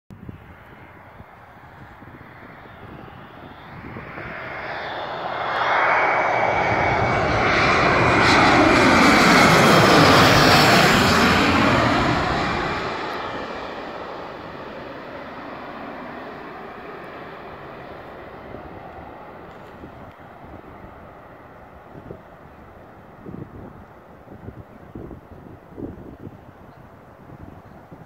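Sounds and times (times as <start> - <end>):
jet passing low overhead: 0.2 - 28.0.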